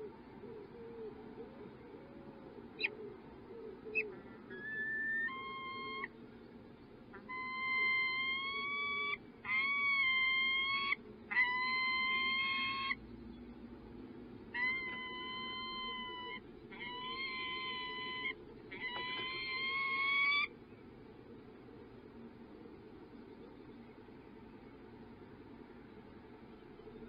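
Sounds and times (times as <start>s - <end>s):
falcon calling: 2.8s - 6.2s, 7.1s - 13.0s, 14.5s - 20.6s.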